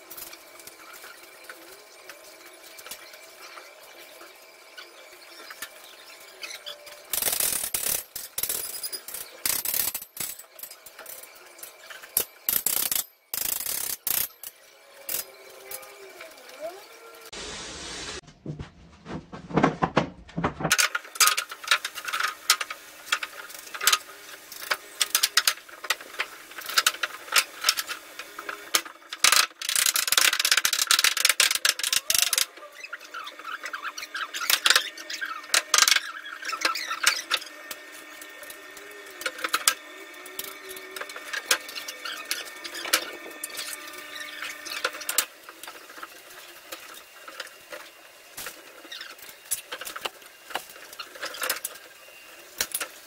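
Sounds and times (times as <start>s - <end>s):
wooden boards knocking and clattering: 18.3s - 20.9s.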